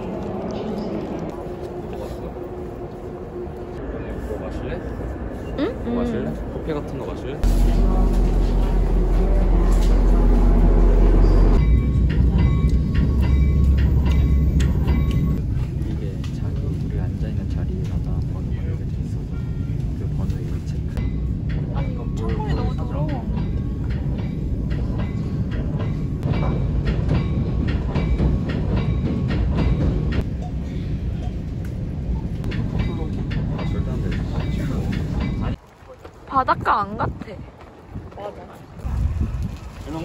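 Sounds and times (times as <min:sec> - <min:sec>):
train low rumble: 0:00.0 - 0:40.0
wheels clacking over rail joints: 0:21.0 - 0:36.5.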